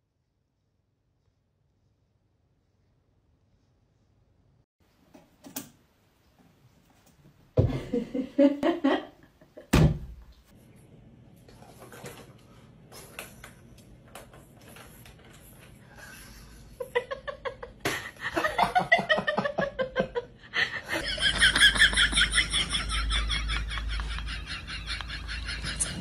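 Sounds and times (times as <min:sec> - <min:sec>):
person laughing hard: 0:17.0 - 0:26.0.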